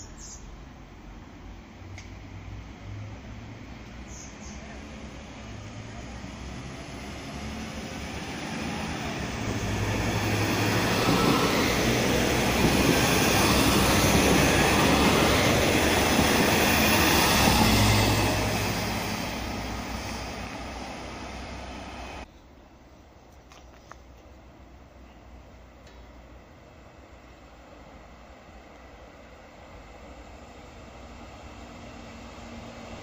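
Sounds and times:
diesel train engines: 0.0s - 33.0s
train wheels rumbling on rails: 1.8s - 22.3s.

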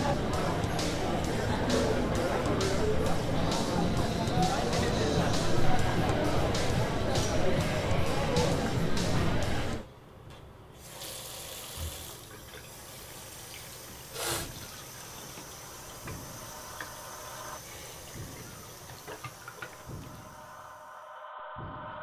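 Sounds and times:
faucet water running into sink: 10.8s - 20.4s.

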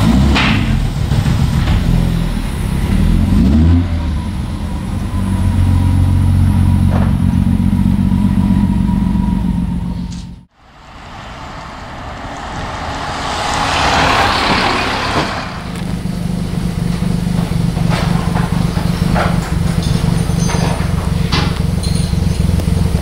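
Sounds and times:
steady low rumble: 0.0s - 23.0s
truck driving past: 0.0s - 23.0s
scattered knocks: 13.7s - 22.8s.

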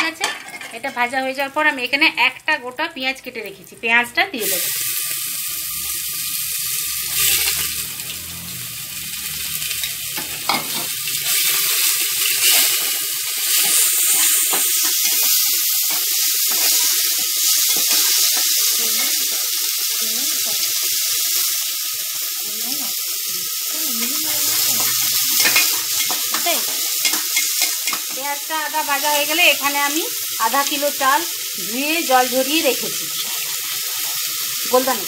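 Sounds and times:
onion sizzling in hot oil: 0.0s - 35.0s
metal spoon scraping pot: 24.4s - 28.1s.

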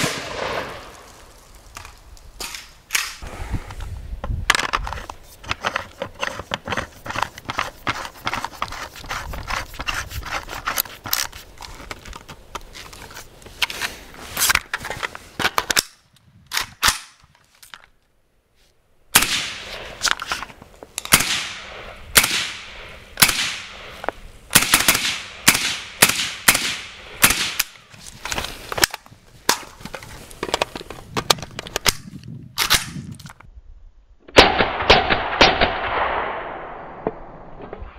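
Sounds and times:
suppressed rifle shots: 0.0s - 0.9s, 19.1s - 19.9s, 21.0s - 23.8s, 24.5s - 27.7s, 34.4s - 37.4s.

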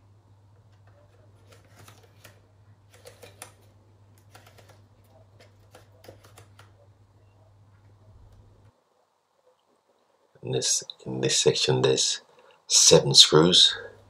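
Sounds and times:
plastic clicking and scraping: 0.6s - 6.8s.

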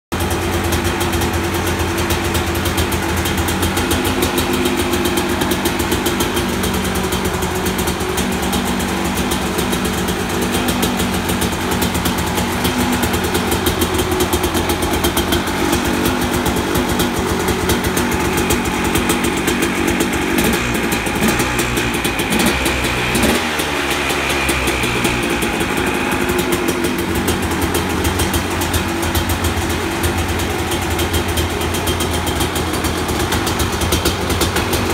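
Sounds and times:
two-stroke engine idling: 0.1s - 34.9s.

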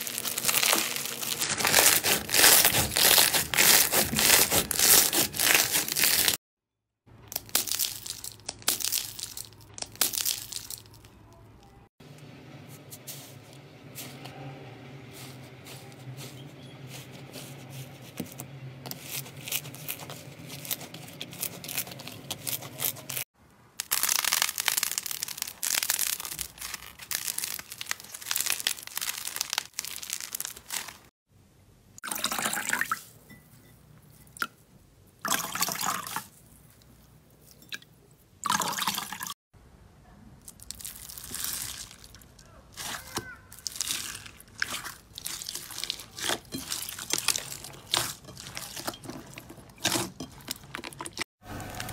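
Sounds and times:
slime squishing and crackling: 0.0s - 6.4s, 7.2s - 11.4s, 18.9s - 31.1s, 40.4s - 51.9s
wet sponge squelching: 0.0s - 6.4s, 15.1s - 23.3s, 40.8s - 51.9s.

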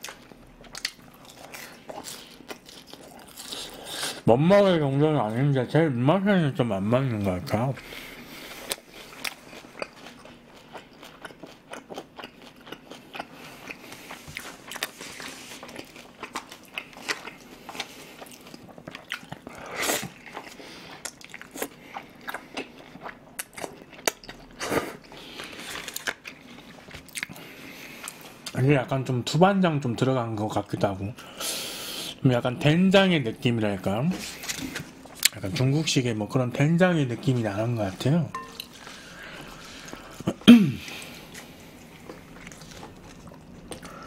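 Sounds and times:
person chewing food: 0.0s - 4.2s, 7.2s - 28.6s, 34.1s - 35.5s, 37.2s - 44.0s.

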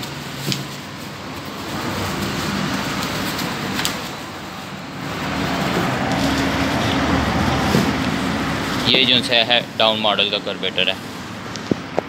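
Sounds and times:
bubble wrap rustling and crinkling: 0.0s - 9.4s.

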